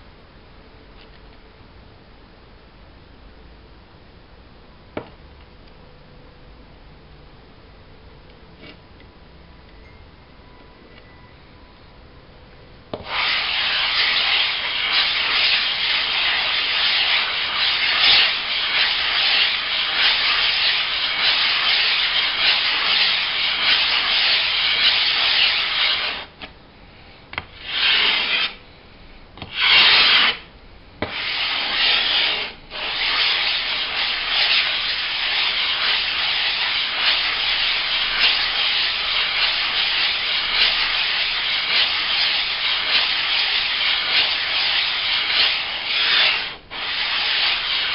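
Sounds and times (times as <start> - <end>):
whetstone scraping on glass: 29.4 - 30.4.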